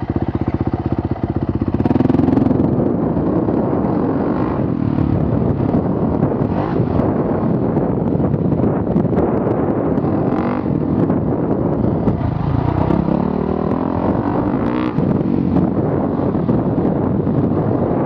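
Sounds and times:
dirt bike engine revving: 1.7 - 7.8, 9.3 - 16.6.

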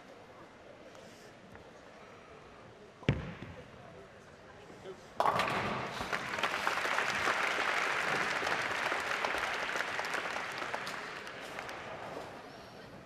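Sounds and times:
audience applauding: 5.9 - 12.1.

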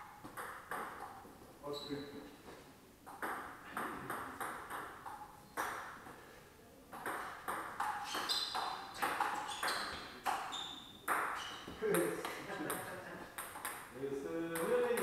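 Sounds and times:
table tennis ball knocking: 0.2 - 1.2, 3.1 - 6.0, 6.9 - 10.5, 11.1 - 13.9.

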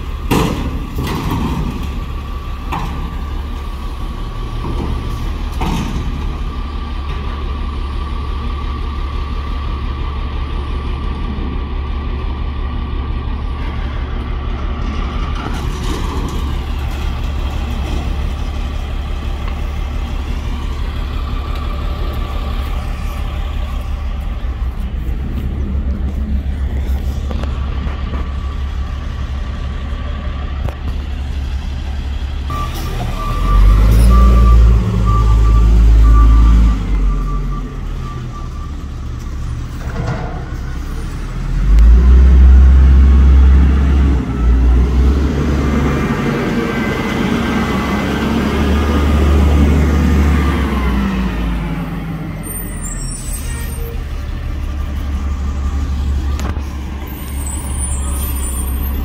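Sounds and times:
garbage truck engine revving: 31.7 - 37.9, 39.5 - 59.0
reversing alarm beeping: 32.5 - 39.2, 52.5 - 59.0.

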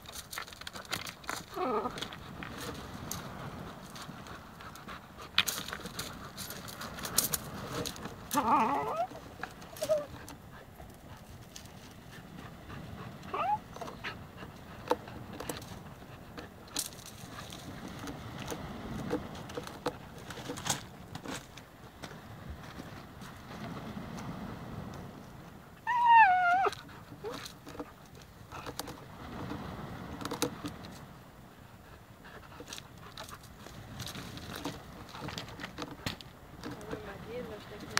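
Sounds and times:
dog panting: 3.6 - 7.0.

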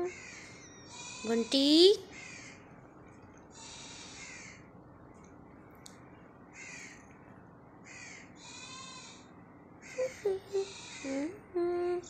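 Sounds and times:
crows cawing: 0.0 - 1.4, 2.1 - 2.7, 3.5 - 4.7, 6.5 - 7.1, 7.8 - 11.1.

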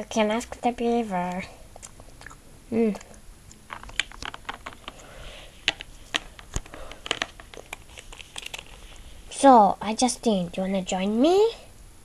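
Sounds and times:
plastic toys clicking and rustling: 3.7 - 8.9.

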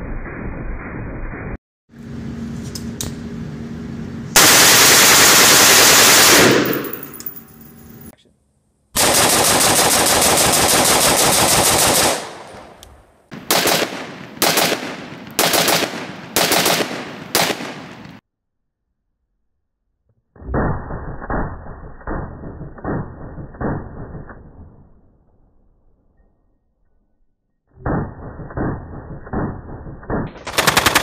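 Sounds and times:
rifle shots with echo: 4.4 - 7.2, 9.0 - 18.2.

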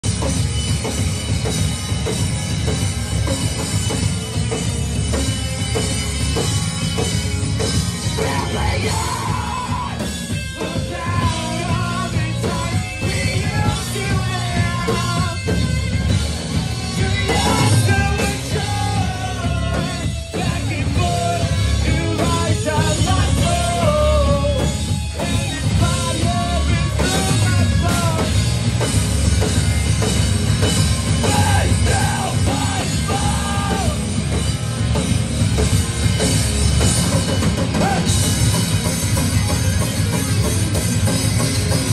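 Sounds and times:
rock band playing live: 0.0 - 41.9
person singing: 8.1 - 15.6, 31.2 - 34.0.

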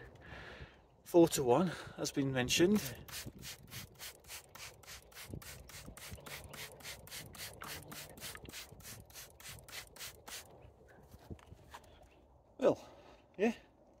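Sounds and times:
spray bottle squirting: 2.8 - 10.5.

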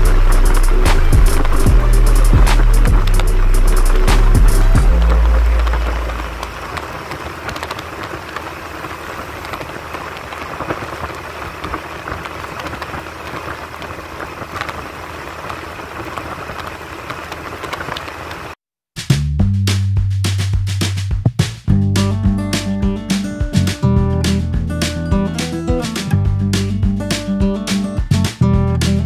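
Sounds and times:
background music: 0.0 - 6.6, 21.7 - 29.0
light crackling: 0.0 - 18.6
wind and road noise: 0.0 - 18.6.

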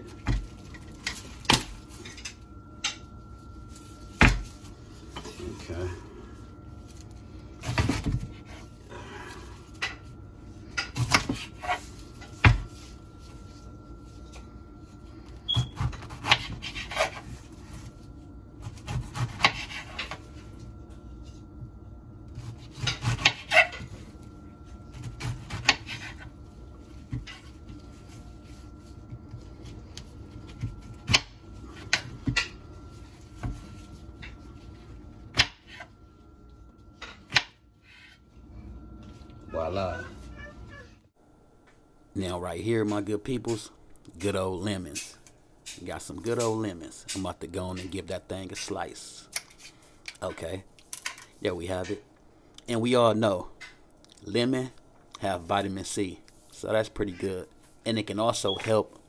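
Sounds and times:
knife sawing through pineapple: 16.0 - 17.3, 18.6 - 20.0.

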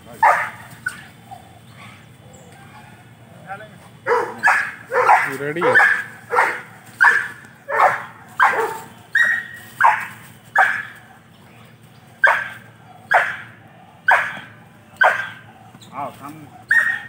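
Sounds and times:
dog barking: 0.2 - 1.1, 4.0 - 11.0, 12.2 - 15.5, 16.6 - 17.0.

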